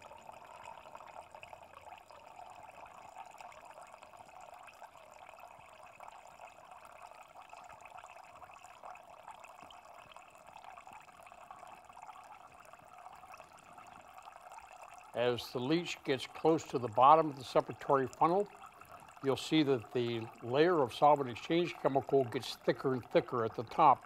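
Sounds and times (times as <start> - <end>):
liquid trickling into beaker: 0.0 - 24.0.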